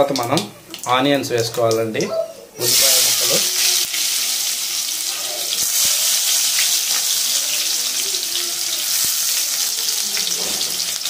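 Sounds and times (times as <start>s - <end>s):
onions sizzling in hot oil: 2.6s - 11.0s.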